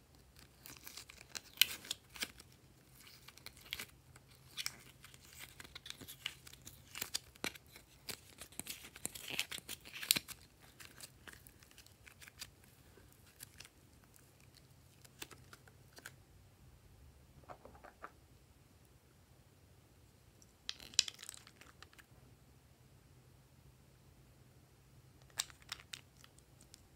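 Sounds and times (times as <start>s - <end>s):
slime crackling and tearing: 0.3s - 12.5s.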